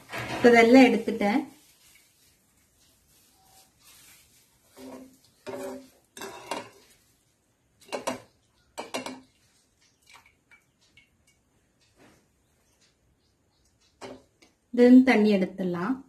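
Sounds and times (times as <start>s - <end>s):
metal strainer clanking on wok: 5.5s - 6.8s.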